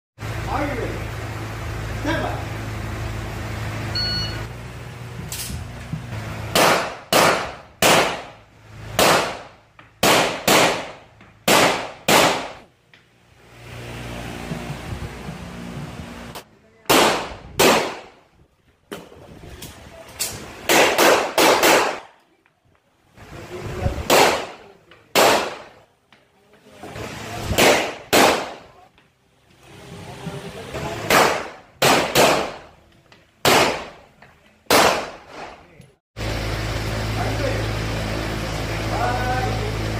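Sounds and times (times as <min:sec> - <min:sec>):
pistol shots echoing indoors: 0:10.0 - 0:12.6, 0:31.1 - 0:32.7.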